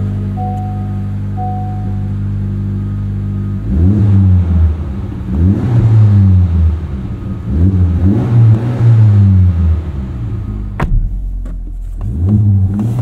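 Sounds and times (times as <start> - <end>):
car engine idling: 0.0 - 13.0
engine revving: 3.4 - 11.2, 12.0 - 13.0.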